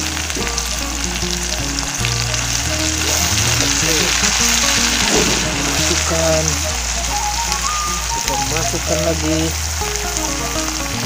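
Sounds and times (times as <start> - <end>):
background music: 0.0 - 11.0
food sizzling in oil: 0.0 - 11.0.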